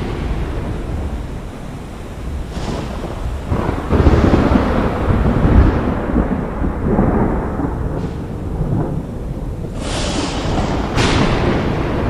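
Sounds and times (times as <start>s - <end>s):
rolling thunder: 0.0s - 12.0s
storm noise: 0.0s - 12.0s
hissing surge: 9.8s - 11.2s.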